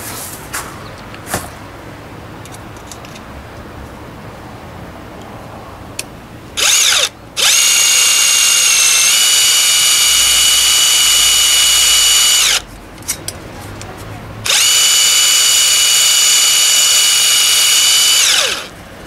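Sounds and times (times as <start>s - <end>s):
electric drill drilling metal: 6.6s - 12.6s, 14.5s - 18.7s.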